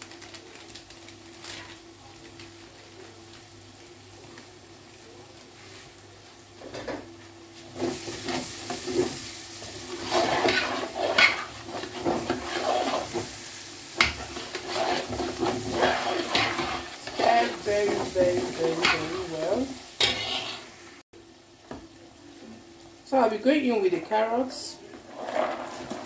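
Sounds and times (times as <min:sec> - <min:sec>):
oil sizzling: 0:00.0 - 0:26.0
metal spoon scraping a pot: 0:10.0 - 0:13.2, 0:14.0 - 0:18.0, 0:20.0 - 0:20.7.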